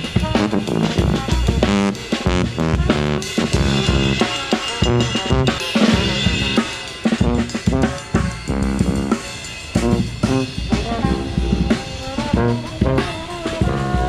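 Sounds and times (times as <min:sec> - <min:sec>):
drum kit: 0:00.0 - 0:14.0
trombone playing: 0:00.0 - 0:14.0.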